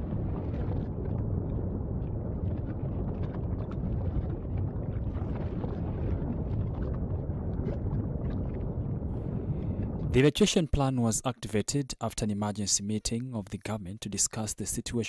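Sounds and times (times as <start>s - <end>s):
volcano rumbling: 0.0s - 10.2s
wind buffeting microphone: 0.0s - 10.2s.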